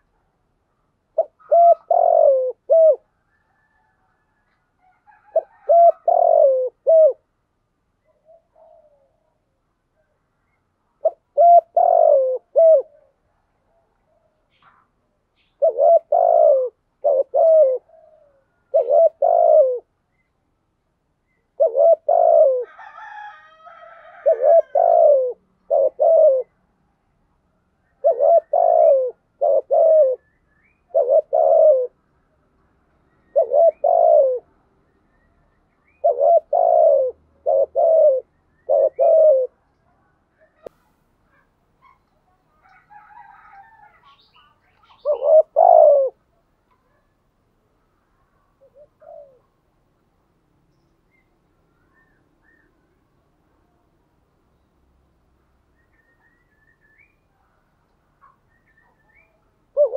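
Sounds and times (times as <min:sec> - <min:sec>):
dove cooing: 0:01.1 - 0:07.3, 0:08.0 - 0:09.4, 0:11.0 - 0:20.0, 0:21.3 - 0:26.6, 0:27.8 - 0:32.0, 0:33.1 - 0:34.6, 0:35.8 - 0:40.7, 0:41.3 - 0:47.2, 0:48.3 - 0:49.6, 0:58.2 - 0:59.9.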